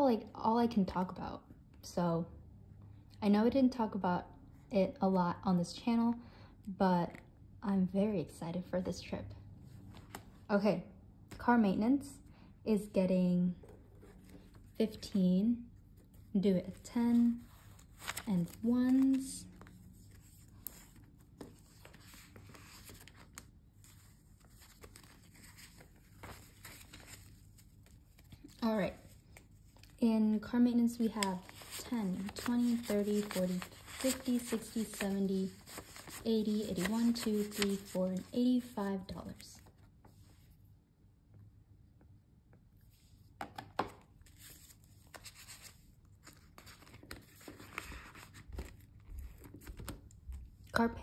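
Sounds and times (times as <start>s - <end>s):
paper banknotes rustling: 16.0s - 30.0s, 30.9s - 39.8s, 44.2s - 50.0s.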